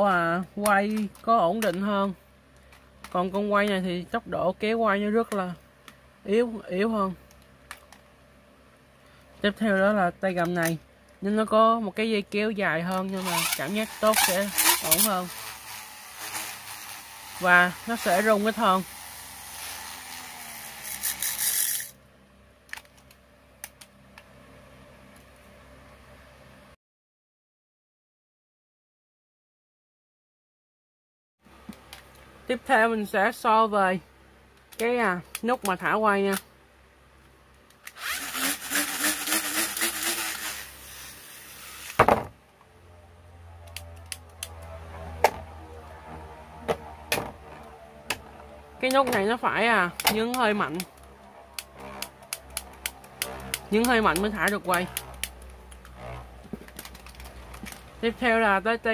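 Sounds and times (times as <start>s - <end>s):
spinning top whirring: 13.1s - 22.0s, 37.9s - 42.0s.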